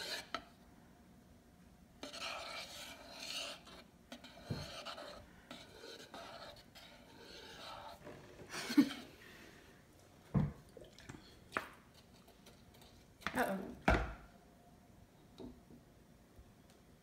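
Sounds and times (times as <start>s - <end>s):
metal spoon scraping plastic bowl: 0.0s - 0.5s, 2.0s - 9.1s.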